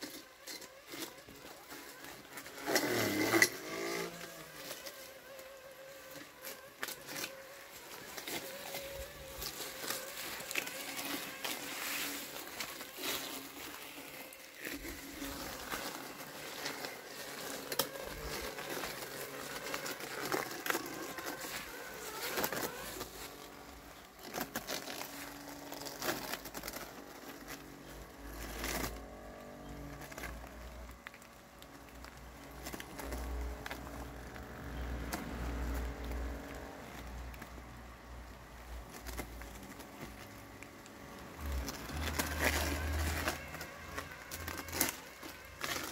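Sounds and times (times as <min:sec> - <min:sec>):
leaves crinkling and crackling: 0:00.0 - 0:45.9
motor whine: 0:00.1 - 0:30.9.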